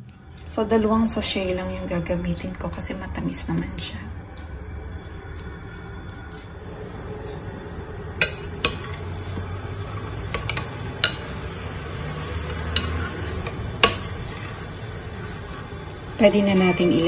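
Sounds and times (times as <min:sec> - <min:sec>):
spoon stirring sticky rice: 0:08.2 - 0:16.2.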